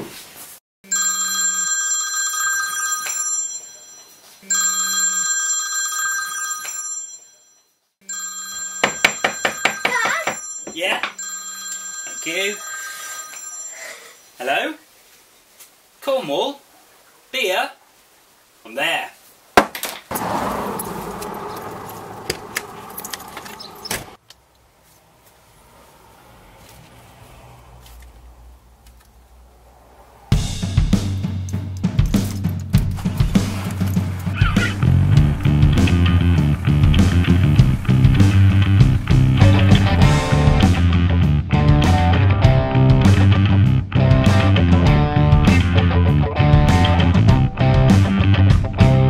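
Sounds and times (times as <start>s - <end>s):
phone ringtone: 0.9s - 14.2s
rushing outdoor noise: 16.6s - 32.2s, 33.0s - 40.6s.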